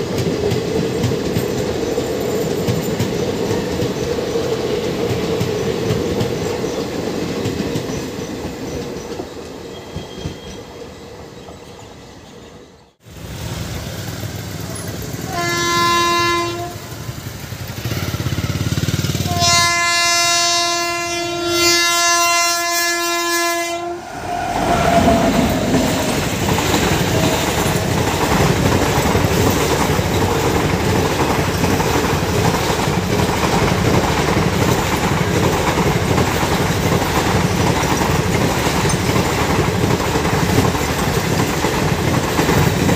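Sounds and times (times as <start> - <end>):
train clattering over rail joints: 0.0 - 10.6, 24.8 - 42.9
train coaches rumbling past: 0.0 - 42.9
shrill train horn: 15.2 - 17.2, 19.2 - 27.8.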